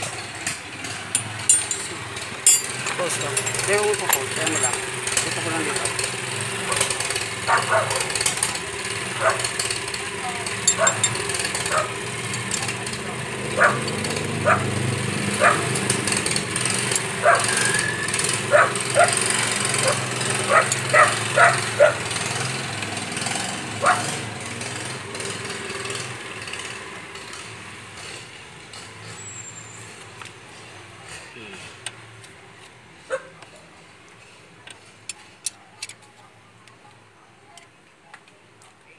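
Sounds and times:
dog barking: 0:06.7 - 0:08.2, 0:09.2 - 0:09.5, 0:10.8 - 0:11.1, 0:11.7 - 0:12.0, 0:13.6 - 0:14.8, 0:15.4 - 0:15.7, 0:17.2 - 0:17.6, 0:18.5 - 0:19.2, 0:19.8 - 0:22.0, 0:23.8 - 0:24.1, 0:33.1 - 0:33.4.

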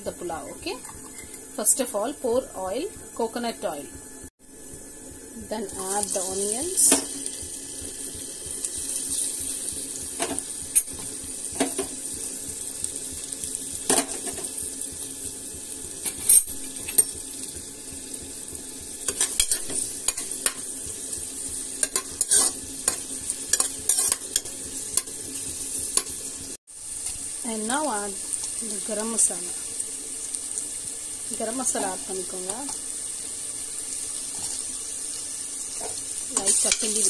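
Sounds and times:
onions sizzling in oil: 0:00.0 - 0:37.0.

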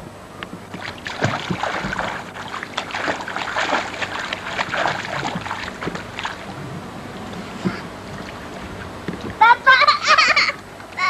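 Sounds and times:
water splashing: 0:00.7 - 0:09.5.

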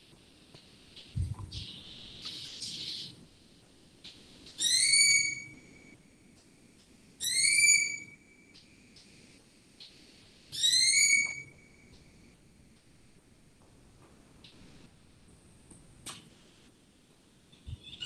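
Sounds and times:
bird whistled call: 0:04.6 - 0:05.7, 0:07.2 - 0:08.2, 0:10.6 - 0:11.6, 0:17.7 - 0:18.0.

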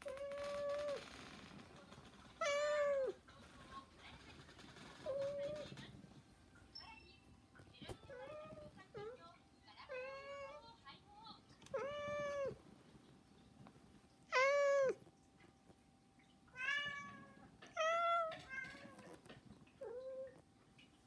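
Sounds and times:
cats meowing: 0:02.4 - 0:03.2, 0:11.6 - 0:12.6, 0:14.3 - 0:15.1, 0:16.5 - 0:20.4.

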